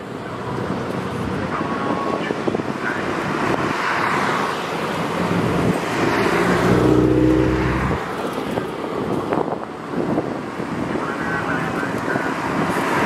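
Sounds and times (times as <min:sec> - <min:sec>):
outdoor background noise: 0:00.0 - 0:13.0
car driving past at low revs: 0:04.0 - 0:08.4.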